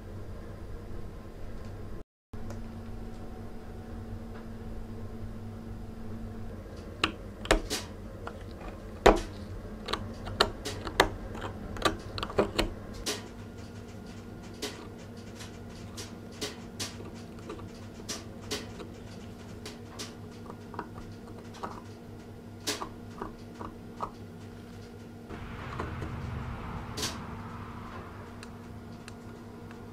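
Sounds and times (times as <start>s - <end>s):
low steady hum: 25.3s - 29.9s.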